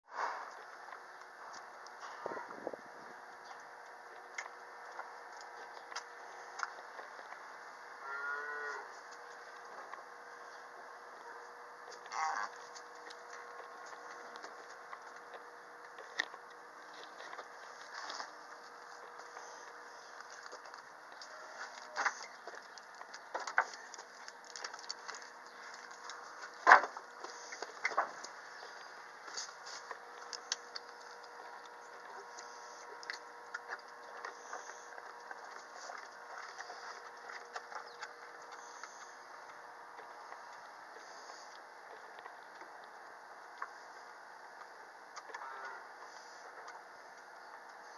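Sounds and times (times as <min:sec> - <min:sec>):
calf mooing: 0:08.0 - 0:09.0, 0:12.0 - 0:12.7, 0:45.3 - 0:45.9.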